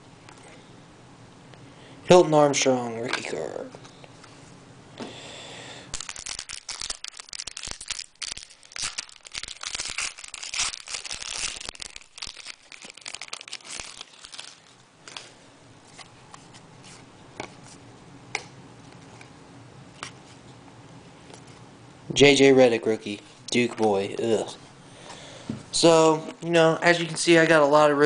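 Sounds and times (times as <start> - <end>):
foil wrapper crinkling: 5.9 - 17.0.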